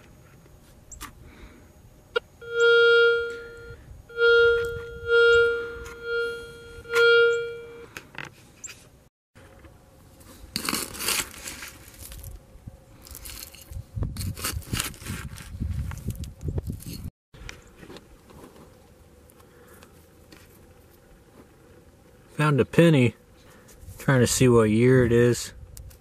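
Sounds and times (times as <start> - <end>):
metal detector beeping: 2.1 - 7.9
digging tool scraping gravel: 10.2 - 12.4, 13.0 - 15.6.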